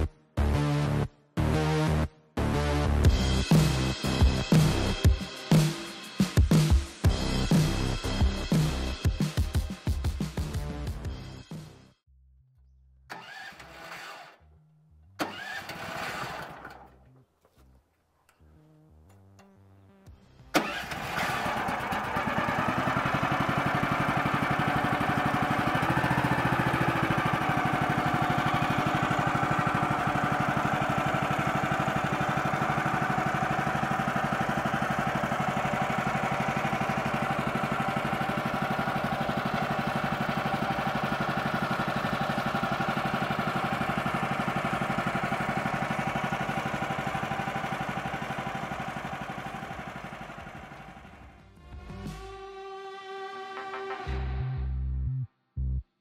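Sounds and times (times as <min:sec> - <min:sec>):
gasoline engine running: 0:03.1 - 0:05.2, 0:13.1 - 0:51.5.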